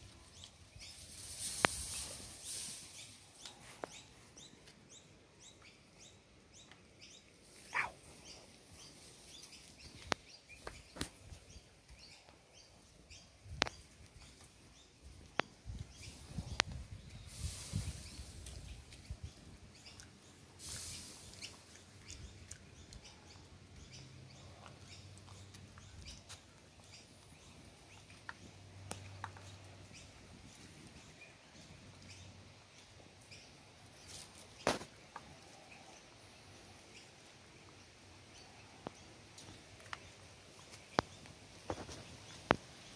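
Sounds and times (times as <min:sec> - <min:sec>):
small birds chirping: 0:00.0 - 0:42.9
puppies scuffling on concrete: 0:00.2 - 0:04.8, 0:39.4 - 0:42.9.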